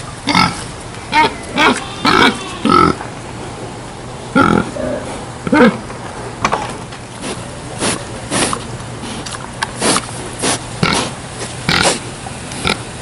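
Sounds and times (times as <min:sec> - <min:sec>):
boar sniffing and snorting: 0:07.1 - 0:12.8.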